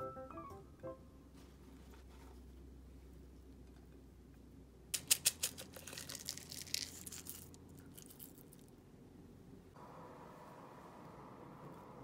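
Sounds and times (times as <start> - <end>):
dry crackling patter of onion flakes: 5.0 - 8.8.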